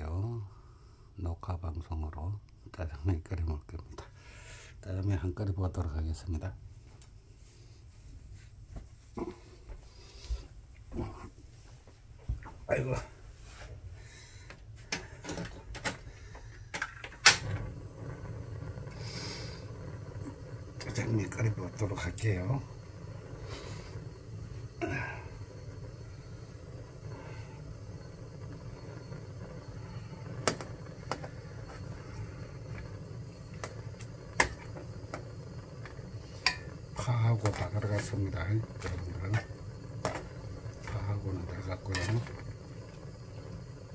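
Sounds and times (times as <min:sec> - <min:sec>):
steady low hum: 0:00.0 - 0:43.9
objects knocking and clicking: 0:30.4 - 0:31.8, 0:38.7 - 0:41.1.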